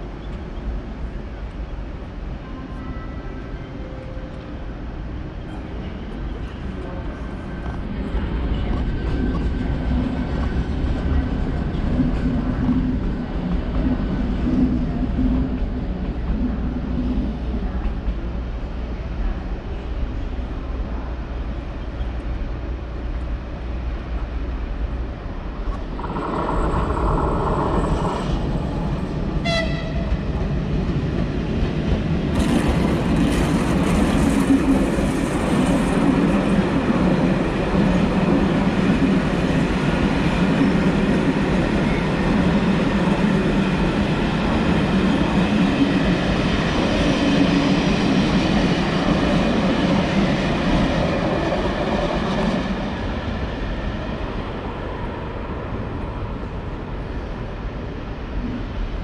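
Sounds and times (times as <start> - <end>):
train rumbling along platform: 0.0 - 59.0
train horn blast: 29.4 - 30.2.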